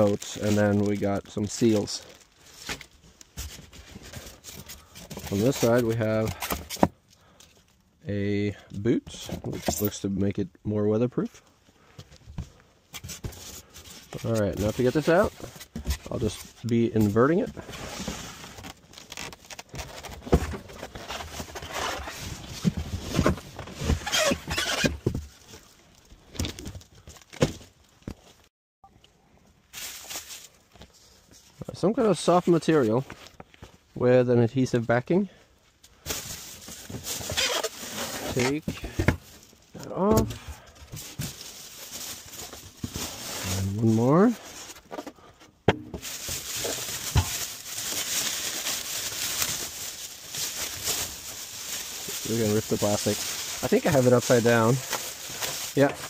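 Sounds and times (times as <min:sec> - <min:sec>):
plastic wrapping crinkling: 0:00.0 - 0:06.4, 0:18.0 - 0:23.2, 0:29.7 - 0:30.6, 0:36.0 - 0:39.9, 0:41.0 - 0:44.8, 0:46.0 - 0:56.0
cardboard and foam rustling: 0:00.0 - 0:07.0, 0:11.8 - 0:28.5, 0:29.7 - 0:33.9, 0:36.0 - 0:56.0.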